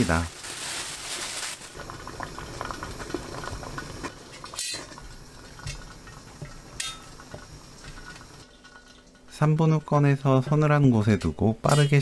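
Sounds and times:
steamer pot lid clinking and rattling: 0:06.8 - 0:07.2.

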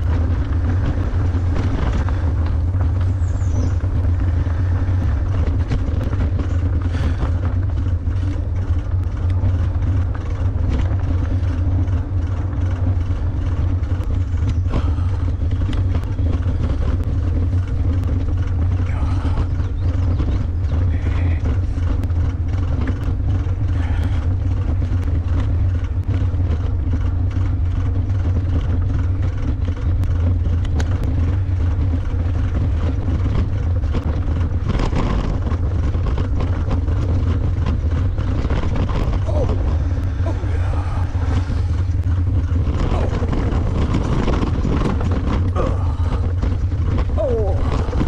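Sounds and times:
ebike rumble over grass: 0:00.0 - 0:48.0
small rattles and clicks: 0:00.0 - 0:48.0.

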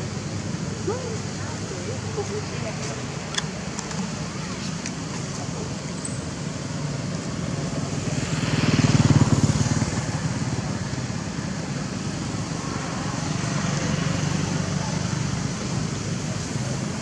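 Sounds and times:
traffic hum: 0:00.0 - 0:17.0
motorbike engine passing: 0:07.8 - 0:11.5.

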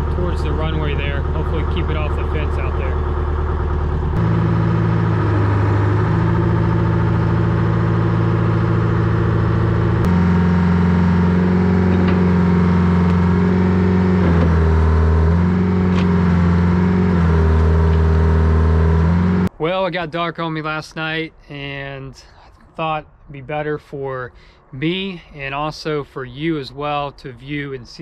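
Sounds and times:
diesel engine running: 0:00.0 - 0:19.5.

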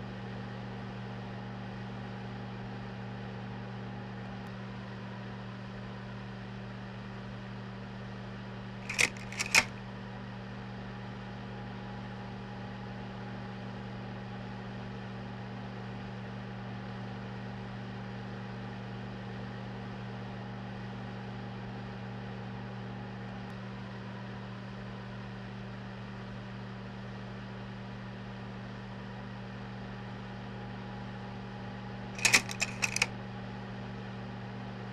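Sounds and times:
projector hum and fan hiss: 0:08.8 - 0:09.8, 0:32.2 - 0:33.1
slide projector mechanical clicks: 0:08.8 - 0:09.8, 0:32.2 - 0:33.1.

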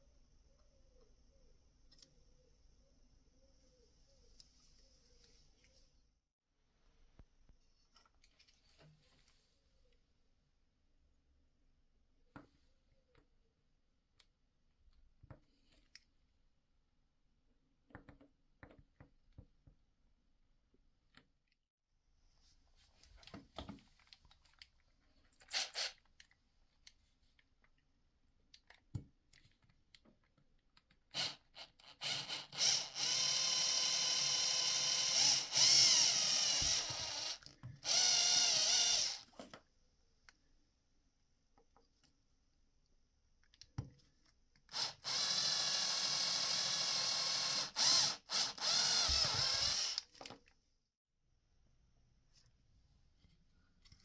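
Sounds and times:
electric drill boring into plastic: 0:25.5 - 0:26.0, 0:31.1 - 0:39.3, 0:44.7 - 0:50.2.

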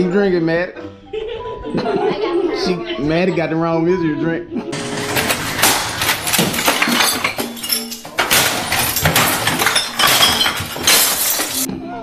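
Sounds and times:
glass clinking and shattering: 0:04.8 - 0:11.7.

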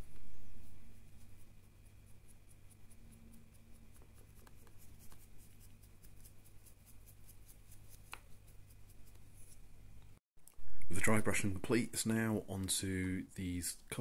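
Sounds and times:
paintbrush scratching strokes: 0:00.0 - 0:09.7
steady low hum: 0:00.0 - 0:14.0.

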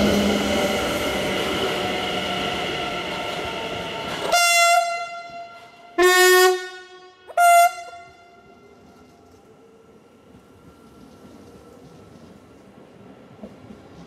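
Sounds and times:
trains in station: 0:00.0 - 0:14.0
train horn blasts: 0:04.2 - 0:08.7.

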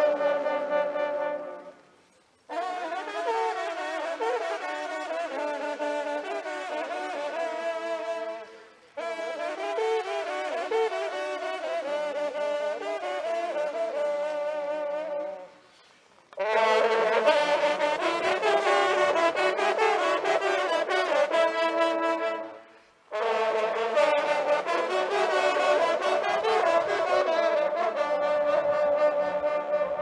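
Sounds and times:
hunting horns playing fanfare: 0:00.0 - 0:01.9, 0:02.5 - 0:30.0.

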